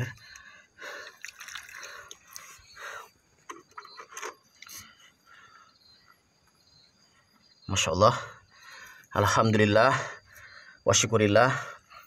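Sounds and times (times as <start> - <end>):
water pouring: 0.8 - 2.6.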